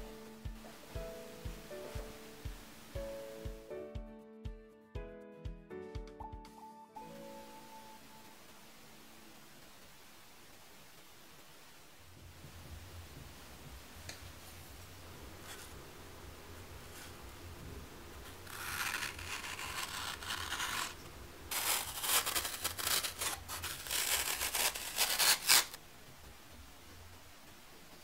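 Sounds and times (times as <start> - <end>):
pencil scratching on foam: 18.2 - 25.8
knife slicing floral foam: 18.3 - 25.8.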